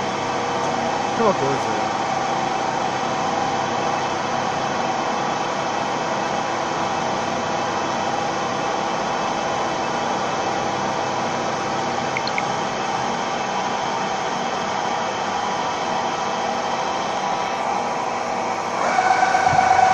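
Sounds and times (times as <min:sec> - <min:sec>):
drilling machine humming: 0:17.0 - 0:19.9.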